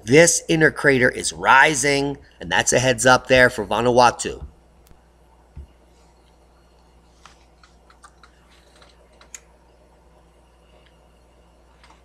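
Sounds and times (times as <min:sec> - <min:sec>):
low steady hum: 0:00.0 - 0:12.0
computer keys clicking: 0:07.6 - 0:09.5.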